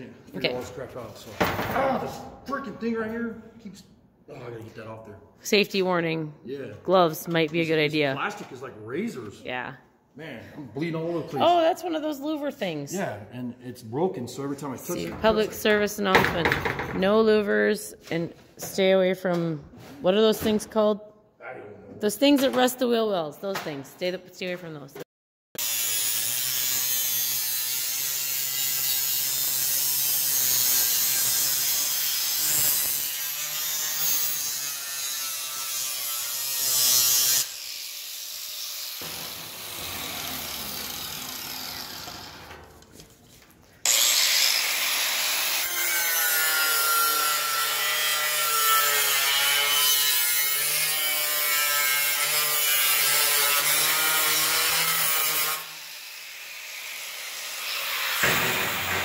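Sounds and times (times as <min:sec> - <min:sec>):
angle grinder grinding steel: 0:25.6 - 0:42.7, 0:43.8 - 0:59.0.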